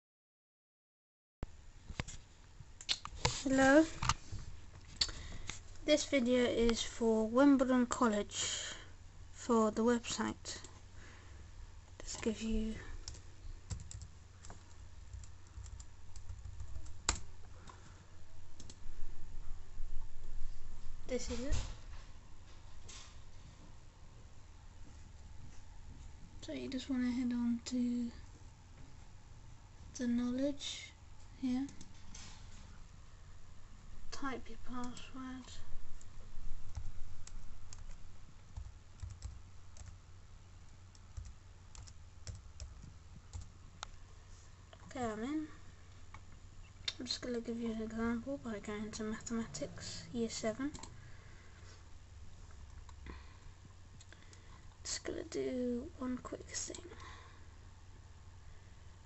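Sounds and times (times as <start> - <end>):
steady low hum: 1.5 - 59.0
keyboard typing clicks: 13.0 - 17.3, 18.6 - 18.8, 38.6 - 40.0, 40.9 - 43.5.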